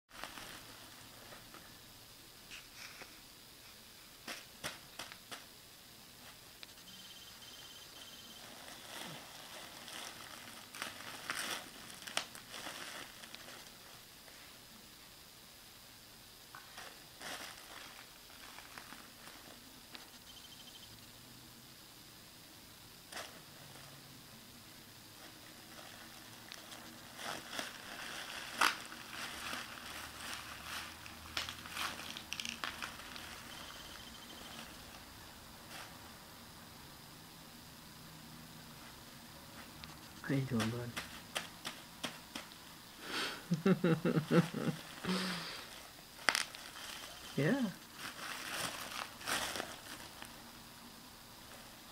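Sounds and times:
bubble wrap cracking: 0:00.1 - 0:01.5, 0:08.4 - 0:13.9, 0:16.6 - 0:20.1, 0:25.7 - 0:35.0, 0:44.0 - 0:50.4
bubble wrap crinkling: 0:00.1 - 0:01.7, 0:08.2 - 0:14.5, 0:16.5 - 0:20.2, 0:25.2 - 0:36.0, 0:39.6 - 0:42.7, 0:43.5 - 0:50.6.

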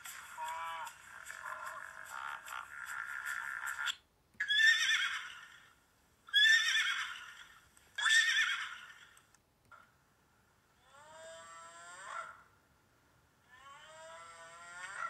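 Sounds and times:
horse whinnying: 0:04.4 - 0:05.6, 0:06.3 - 0:09.2.

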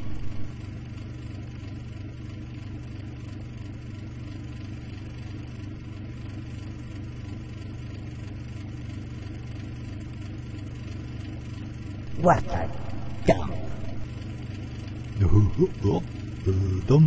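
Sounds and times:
spaceship engine hum: 0:00.0 - 0:00.8, 0:12.0 - 0:17.0
thin high whine: 0:00.0 - 0:00.8, 0:12.1 - 0:17.0.

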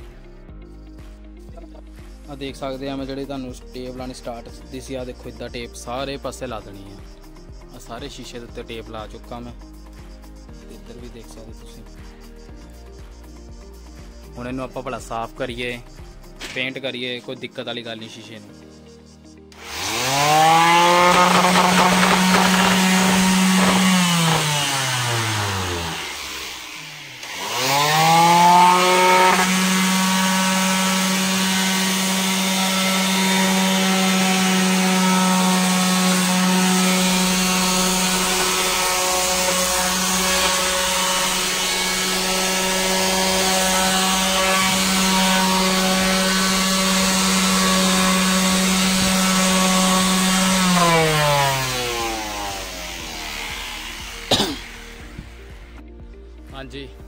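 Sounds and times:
electric sander on wood: 0:19.6 - 0:55.8.

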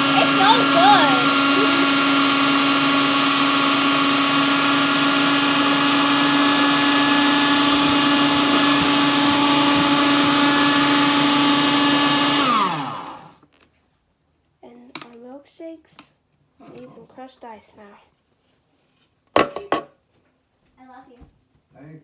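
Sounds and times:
food processor motor running: 0:00.0 - 0:13.4.

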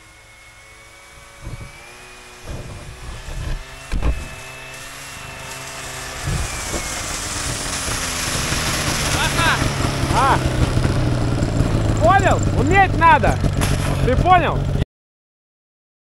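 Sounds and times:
snowmobile engine approaching: 0:00.0 - 0:14.8
low thumps: 0:02.4 - 0:04.6.

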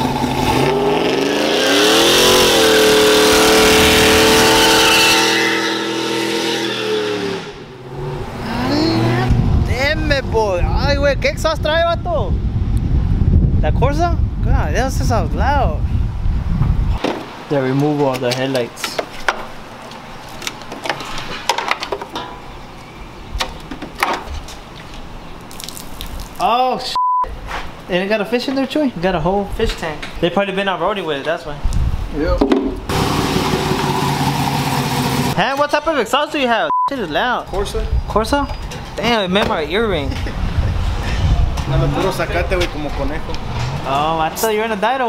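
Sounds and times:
pickup truck exhaust accelerating: 0:00.0 - 0:10.7, 0:32.9 - 0:35.4.

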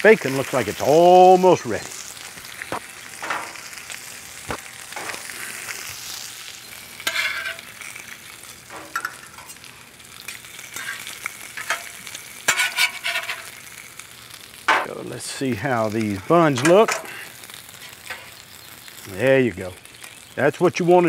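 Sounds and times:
food sizzling on a griddle: 0:00.0 - 0:21.0
metal spatula scraping and clinking: 0:07.0 - 0:07.7, 0:10.7 - 0:13.5.

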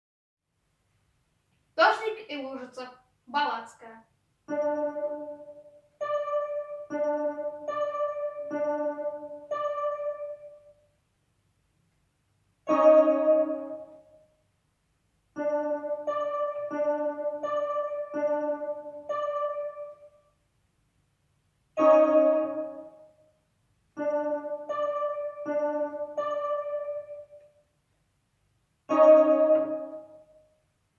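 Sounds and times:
electronic keyboard piano melody: 0:04.4 - 0:10.9, 0:12.6 - 0:14.4, 0:15.3 - 0:20.3, 0:21.8 - 0:23.3, 0:23.9 - 0:27.7, 0:28.9 - 0:30.6
keyboard chord struck: 0:04.5 - 0:10.8, 0:12.7 - 0:14.2, 0:15.4 - 0:20.2, 0:21.8 - 0:23.2, 0:24.0 - 0:27.6, 0:28.9 - 0:30.4.

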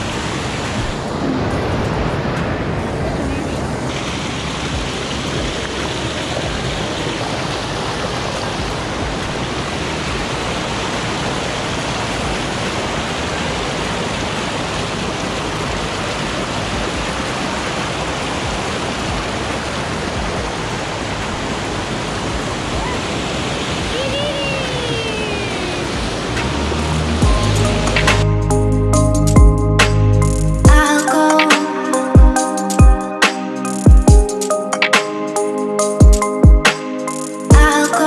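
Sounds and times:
stream rushing over boulders: 0:00.0 - 0:28.3.

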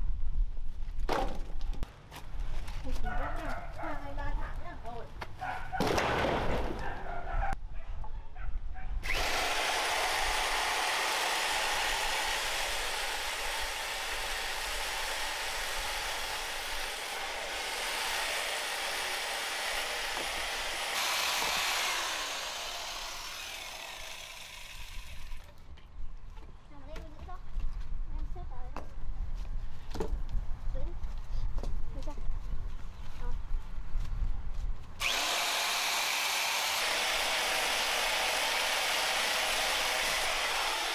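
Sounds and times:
electric chainsaw cutting log: 0:09.0 - 0:25.6, 0:35.0 - 0:40.9.

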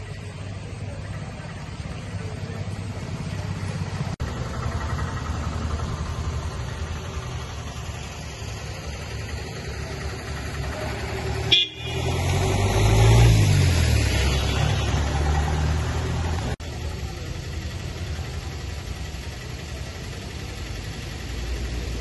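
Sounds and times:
road traffic rumble: 0:00.0 - 0:22.0
faint car horn: 0:11.4 - 0:12.2.

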